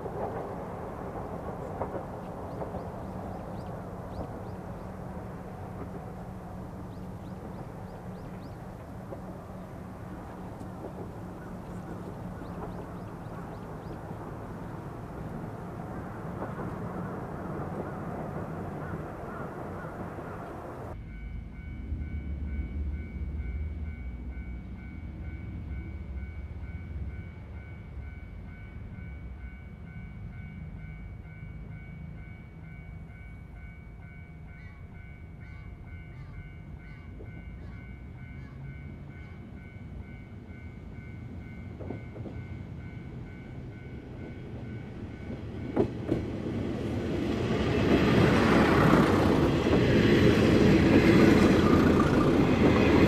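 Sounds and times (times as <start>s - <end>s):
train wheel click: 0.0s - 5.0s, 6.9s - 14.2s
diesel train engine rumble: 0.0s - 53.0s.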